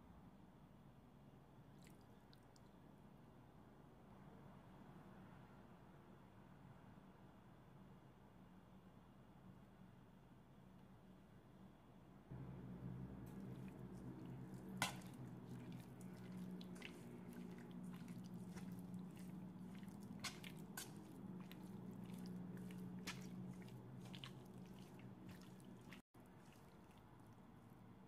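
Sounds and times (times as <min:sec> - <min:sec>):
wet squishing of meat: 0:01.7 - 0:02.8, 0:12.4 - 0:28.0
steady low hum: 0:12.3 - 0:26.0.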